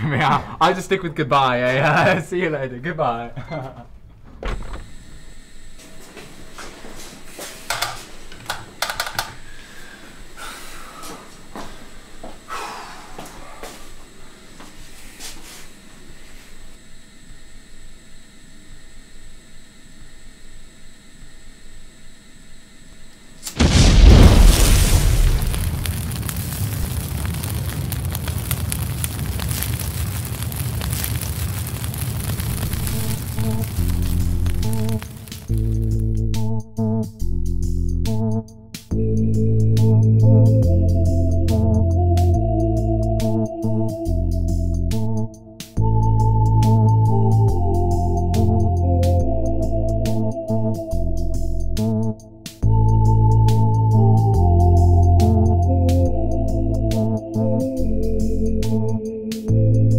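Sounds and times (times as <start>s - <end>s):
large fire rumbling and crackling: 23.5s - 36.4s
low thud: 23.6s - 35.8s.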